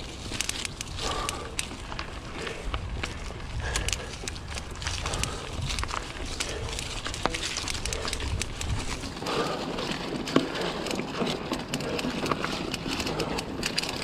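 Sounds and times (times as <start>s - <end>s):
wind rumble on microphone: 0.0s - 10.1s
bike clicks and rattles: 0.0s - 14.0s
bike tyres crackling over dry leaves: 0.0s - 14.0s.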